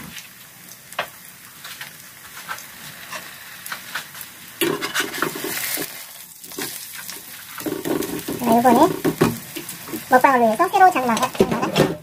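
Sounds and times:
pancake sizzling in a pan: 0.0s - 11.7s
spatula scraping a pan: 2.2s - 10.1s.

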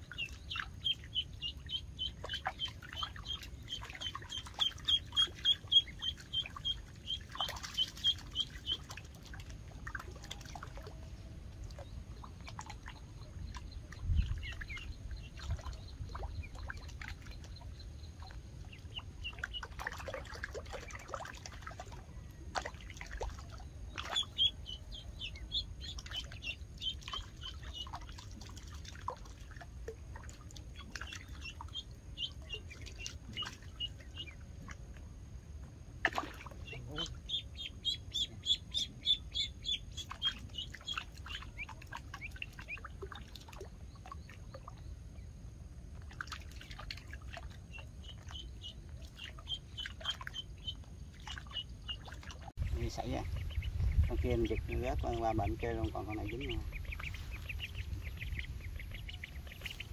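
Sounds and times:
duckling peeping: 0.1s - 9.0s, 11.8s - 21.6s, 24.0s - 28.2s, 30.7s - 34.7s, 36.5s - 42.9s, 47.7s - 59.9s.

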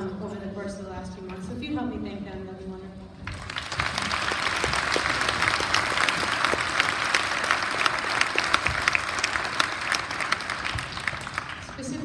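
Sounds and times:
audience applauding: 3.3s - 12.0s.

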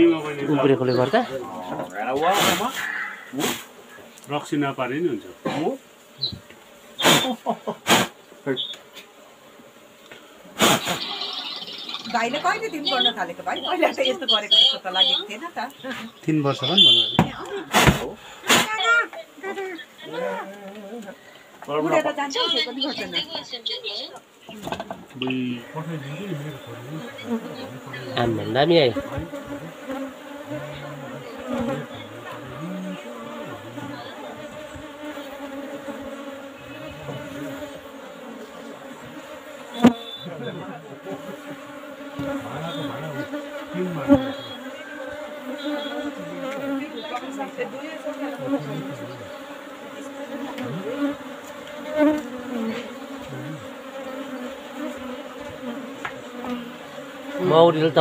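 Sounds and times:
bees buzzing: 0.0s - 58.0s
single louder bee buzz: 0.0s - 58.0s.

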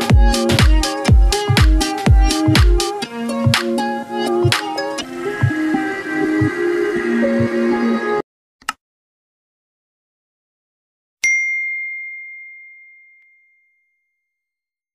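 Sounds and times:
background music: 0.0s - 8.2s
bell-like notification ding: 11.2s - 14.2s.

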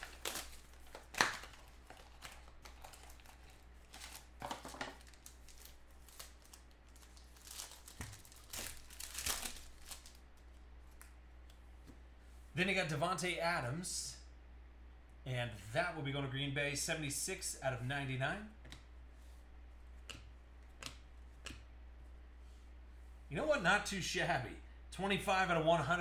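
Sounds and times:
plastic wrapping crinkling and tearing: 0.0s - 11.0s.

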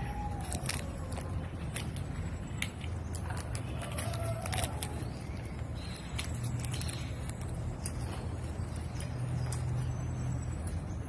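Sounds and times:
low background hum: 0.0s - 11.0s
parrot cracking peanut shell: 0.2s - 8.2s.

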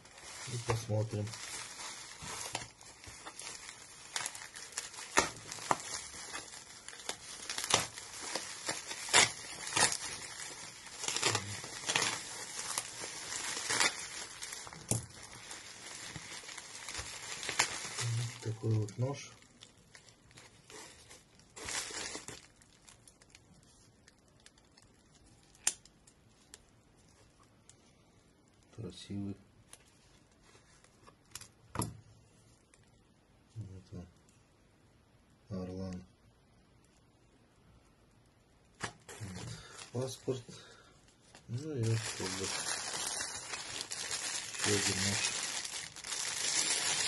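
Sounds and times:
aluminium foil crinkling: 0.0s - 27.3s, 38.8s - 47.0s.

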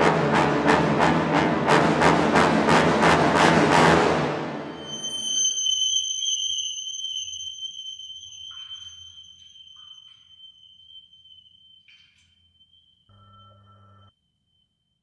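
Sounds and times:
high-pitched ringing tone: 4.7s - 15.0s.

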